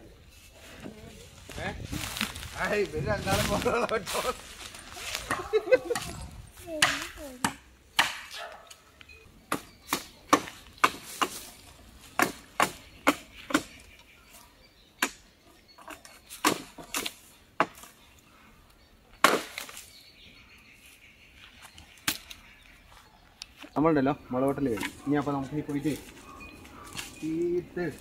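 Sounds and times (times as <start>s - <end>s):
blade chopping bamboo: 6.8s - 8.4s, 16.4s - 17.8s.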